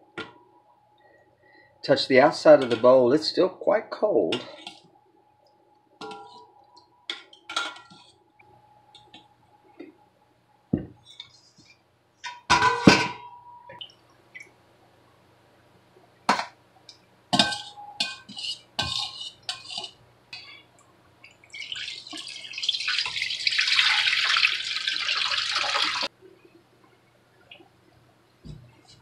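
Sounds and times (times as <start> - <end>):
metal strainer and bowls clinking: 17.4 - 20.5.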